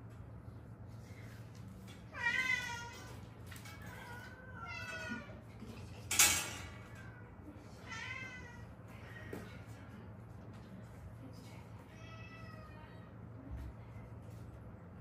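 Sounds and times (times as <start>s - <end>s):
cats meowing: 2.1s - 5.5s, 6.5s - 9.6s, 11.9s - 13.0s.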